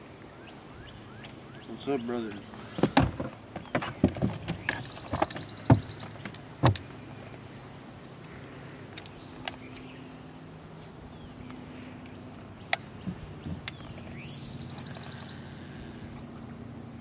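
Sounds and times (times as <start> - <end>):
faint low hum: 0.0 - 17.0
high-pitched insect drone: 7.0 - 17.0.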